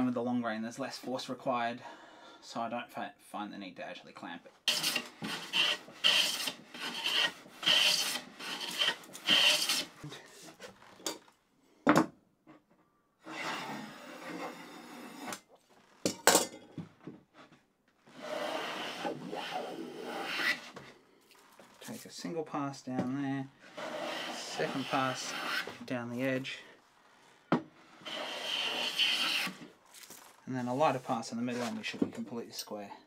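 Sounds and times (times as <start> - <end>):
hand plane shaving wood: 4.7 - 10.7, 13.2 - 15.4, 18.1 - 20.9, 23.6 - 26.4, 27.9 - 29.7.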